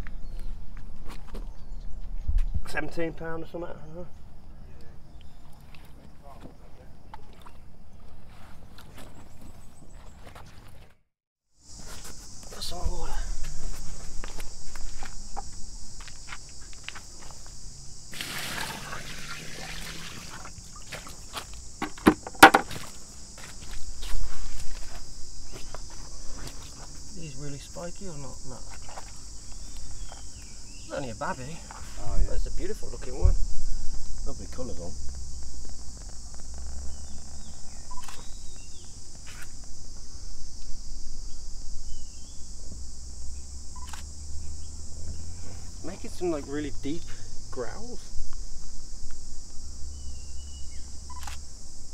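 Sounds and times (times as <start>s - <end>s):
insects chirring: 0.0s - 10.5s, 11.5s - 51.9s
water splashing from a bucket: 18.1s - 21.2s
sharp knocks: 21.8s - 22.8s.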